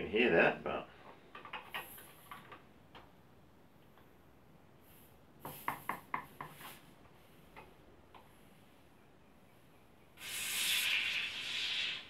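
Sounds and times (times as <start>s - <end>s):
small clicks and hissing spurts: 1.5s - 2.6s, 10.2s - 12.0s
gas hissing from bottle: 10.2s - 12.0s.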